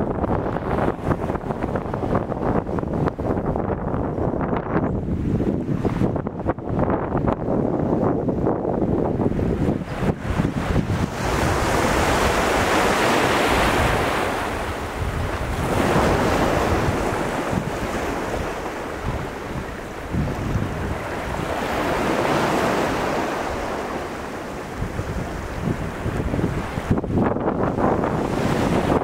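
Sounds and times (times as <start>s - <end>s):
wind buffeting microphone: 0.0s - 29.0s
surf washing against rocks: 8.4s - 29.0s.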